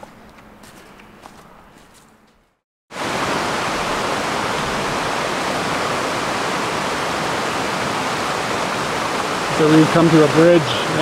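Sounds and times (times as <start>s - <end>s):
water rushing over rocks: 2.9s - 11.0s.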